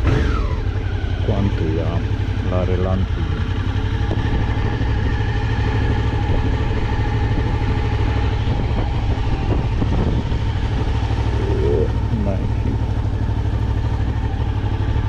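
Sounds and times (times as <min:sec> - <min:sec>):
motorcycle engine near idle: 0:00.0 - 0:15.0.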